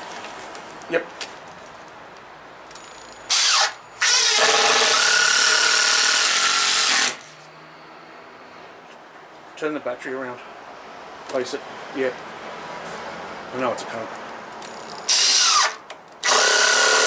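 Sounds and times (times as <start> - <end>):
cordless drill drilling into wood: 3.3 - 7.2, 15.1 - 17.0.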